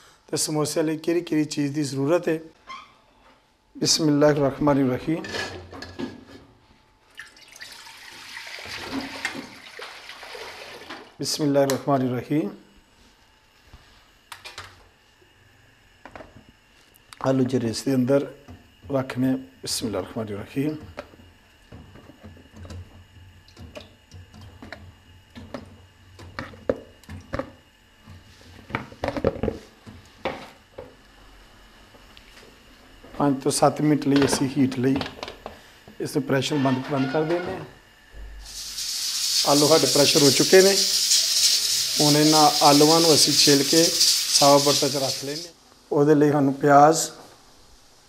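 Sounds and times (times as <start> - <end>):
water pouring into metal pot: 7.1 - 11.0, 38.5 - 45.5.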